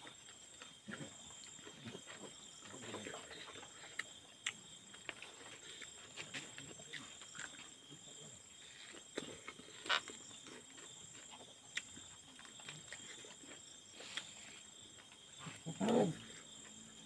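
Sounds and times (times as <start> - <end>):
person chewing and lip-smacking: 3.8 - 5.9.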